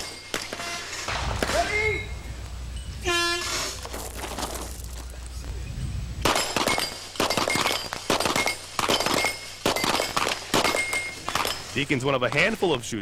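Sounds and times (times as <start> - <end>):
bullets clanging on steel plates: 0.0 - 1.1, 6.3 - 11.8
rapid pistol fire: 6.2 - 11.5.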